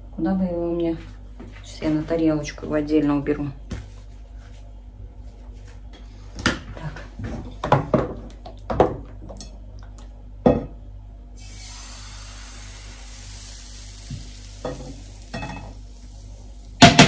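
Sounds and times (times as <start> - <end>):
pancakes sizzling in a pan: 11.4 - 17.0
plate and pan clinking: 14.7 - 15.7.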